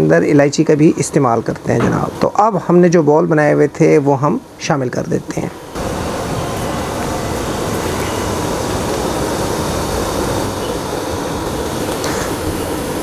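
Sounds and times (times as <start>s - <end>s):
gas flame rumbling: 3.8s - 13.0s.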